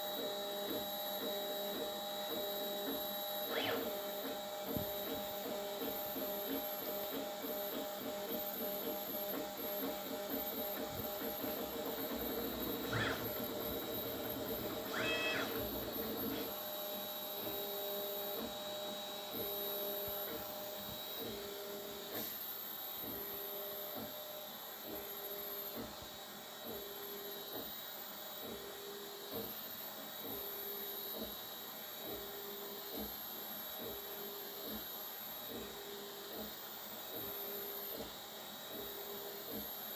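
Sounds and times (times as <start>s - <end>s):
stepper motors whining: 0.7s - 16.6s.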